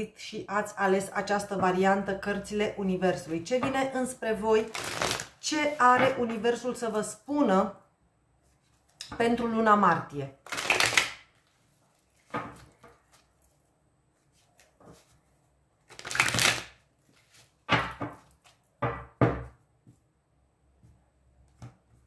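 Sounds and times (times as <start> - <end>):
cards being shuffled: 4.6 - 5.4, 10.4 - 13.6, 15.8 - 17.6.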